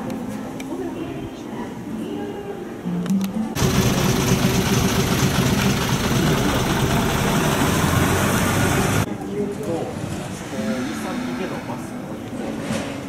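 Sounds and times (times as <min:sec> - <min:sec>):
bus engine idling: 0:03.6 - 0:09.1.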